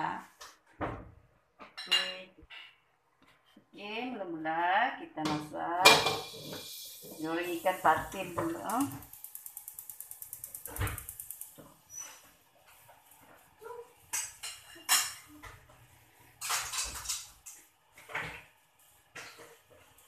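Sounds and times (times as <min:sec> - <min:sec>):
gas igniter ticking: 0:07.0 - 0:11.8
plates and bowls clinking: 0:14.1 - 0:15.6, 0:16.4 - 0:17.6.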